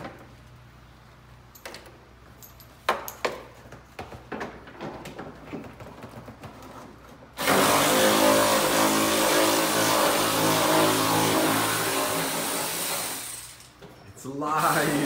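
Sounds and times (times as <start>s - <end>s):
loud engine-like machine: 14.5s - 15.0s.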